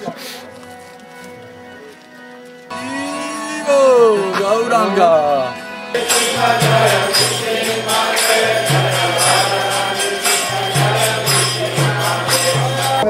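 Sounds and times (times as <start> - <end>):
voices chanting: 2.7 - 13.0
jingling hand percussion: 5.9 - 13.0.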